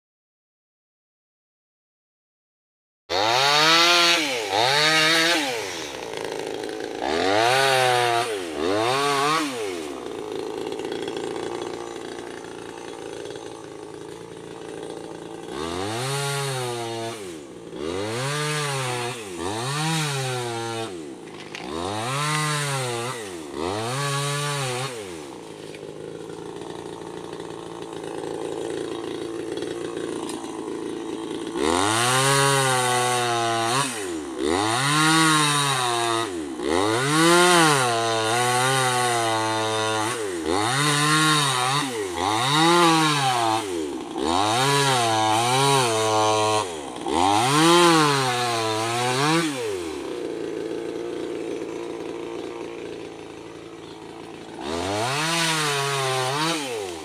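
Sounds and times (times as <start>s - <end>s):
chainsaw engine revving: 3.1s - 57.0s.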